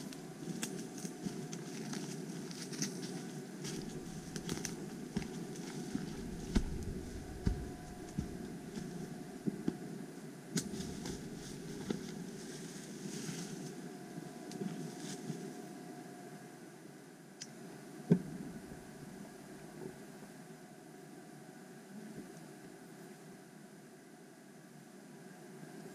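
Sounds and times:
footsteps on forest trail: 0.0 - 9.1, 10.6 - 13.6
twigs and leaves crackling: 0.0 - 9.1, 10.6 - 13.8
low microphone noise: 3.2 - 10.0.

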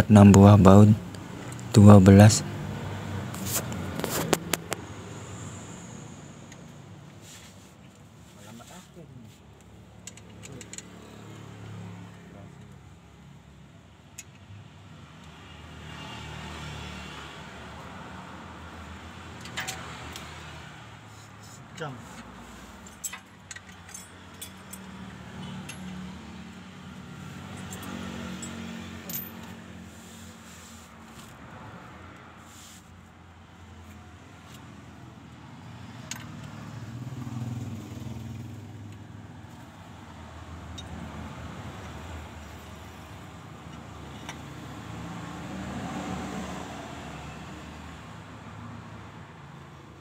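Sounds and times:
metallic bolt clicks and clinks: 22.8 - 26.1, 27.5 - 29.6.

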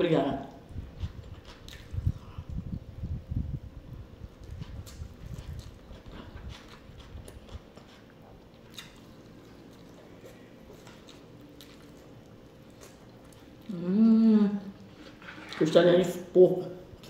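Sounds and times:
quiet chewing with mouth clicks: 0.5 - 2.7, 4.3 - 13.8
person humming mmm: 13.6 - 14.8.

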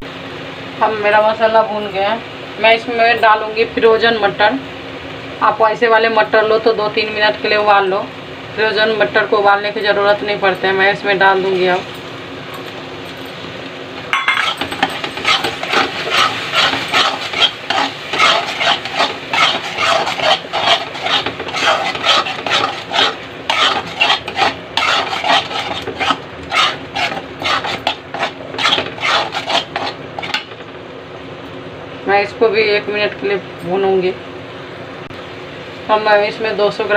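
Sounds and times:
metal spatula scraping a pan: 14.2 - 30.5.

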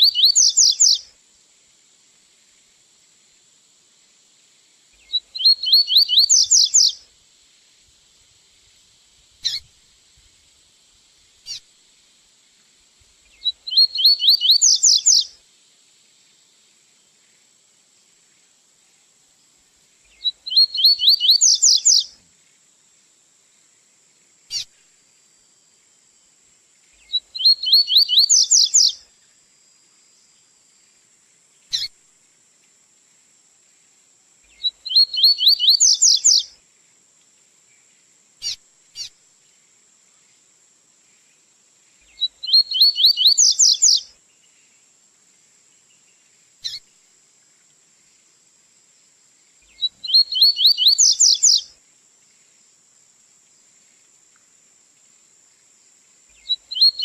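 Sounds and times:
bird singing rapid rising trills: 0.0 - 1.0, 5.0 - 7.0, 13.3 - 15.3, 20.1 - 22.1, 27.0 - 29.0, 34.5 - 36.5, 42.1 - 44.1, 49.6 - 51.7, 56.4 - 57.0
faint high-pitched whine: 0.0 - 57.0.

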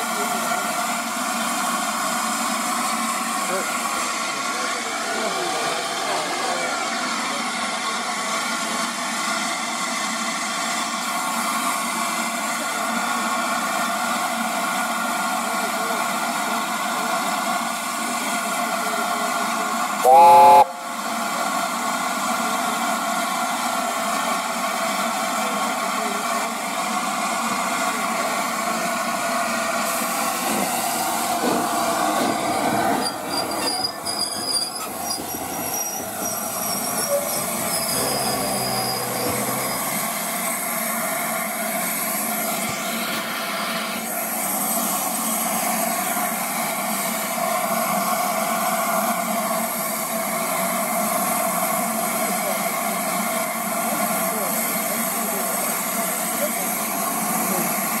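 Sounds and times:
steam hissing: 20.0 - 21.0, 29.0 - 58.0
steam locomotive chime whistle: 20.0 - 21.0.

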